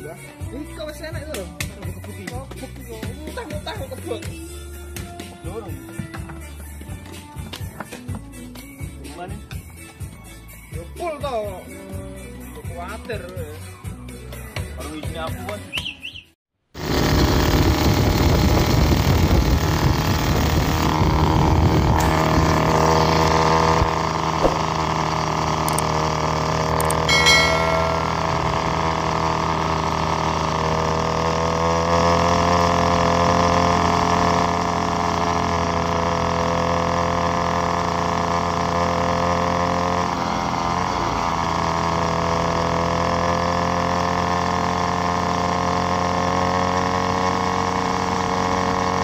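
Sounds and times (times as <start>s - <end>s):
motorcycle engine cruising: 16.8s - 49.0s
brief high tone: 27.0s - 29.1s.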